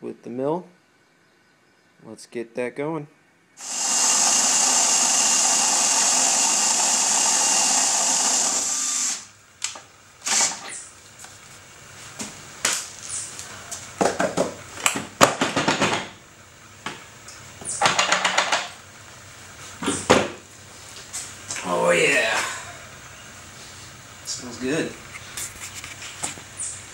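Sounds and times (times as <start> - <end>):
drill driving grain mill: 3.6 - 9.3, 10.2 - 10.7
knocks and clatter of buckets: 14.0 - 16.2, 17.8 - 18.8.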